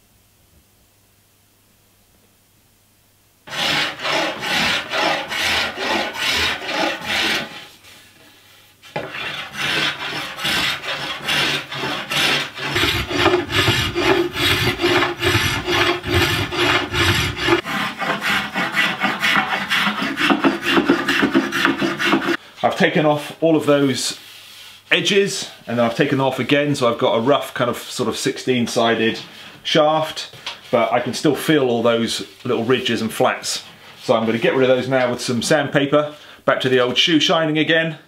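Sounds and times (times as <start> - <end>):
spokeshave scraping wood: 3.5 - 8.1, 8.8 - 22.4.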